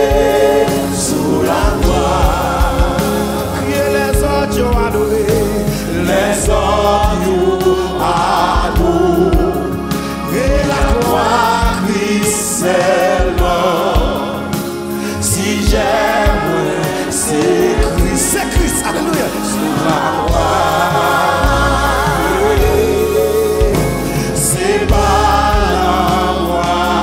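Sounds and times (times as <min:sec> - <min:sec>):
choir singing: 0:00.0 - 0:27.0
instrumental backing with bass: 0:00.0 - 0:27.0
man singing into a microphone: 0:03.4 - 0:07.4.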